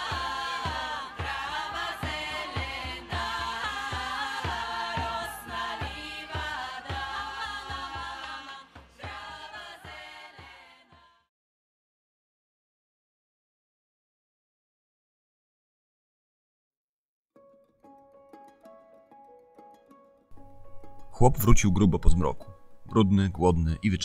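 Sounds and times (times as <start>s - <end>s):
steady drum beat: 0.0s - 10.6s
voices singing in harmony: 0.0s - 11.3s.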